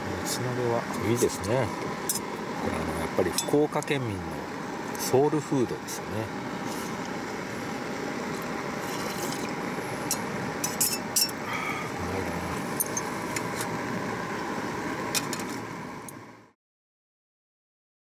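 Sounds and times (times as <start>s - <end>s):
steady rushing hiss: 0.0s - 16.4s
chopsticks clinking on metal cookware: 3.3s - 3.6s, 10.1s - 11.4s.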